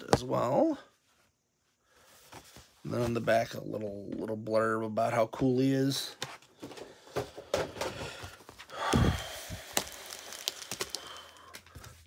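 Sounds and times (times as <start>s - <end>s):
packaging rustle: 8.3s - 12.0s
toy packaging clicks: 9.7s - 11.4s.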